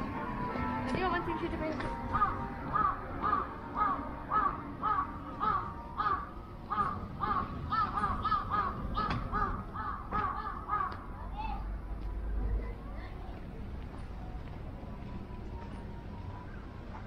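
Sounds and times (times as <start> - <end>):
crows cawing: 2.1 - 11.1.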